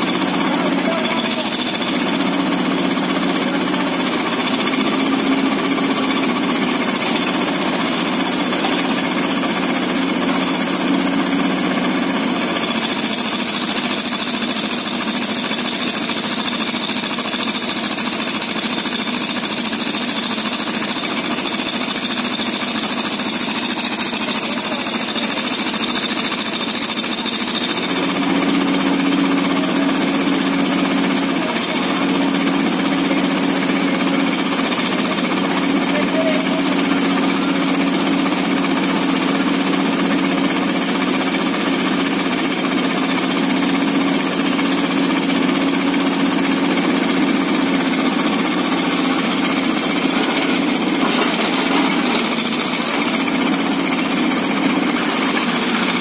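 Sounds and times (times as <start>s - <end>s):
excavator diesel engine clattering: 0.0s - 56.0s.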